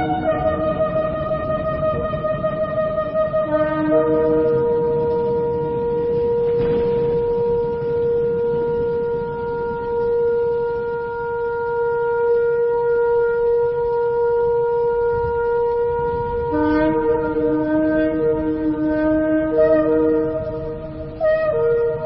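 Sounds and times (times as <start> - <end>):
lower horn note: 0.0 - 22.0
shofar long held note: 0.0 - 22.0.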